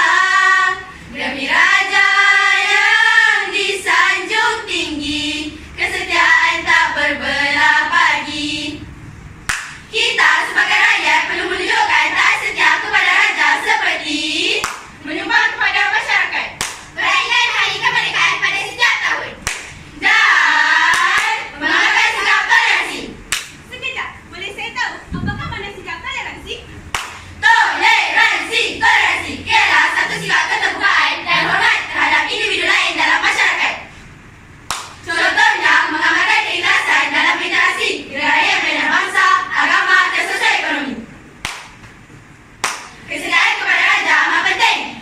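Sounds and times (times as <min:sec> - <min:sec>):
girls' choir singing in unison: 0:00.0 - 0:23.5, 0:26.9 - 0:34.0, 0:34.7 - 0:41.7, 0:42.6 - 0:45.0
sharp clap-like hit: 0:09.4 - 0:09.9, 0:14.6 - 0:15.0, 0:16.6 - 0:17.0, 0:19.4 - 0:19.8, 0:23.3 - 0:23.6, 0:26.9 - 0:27.3, 0:34.7 - 0:35.0, 0:41.4 - 0:42.0, 0:42.6 - 0:43.0.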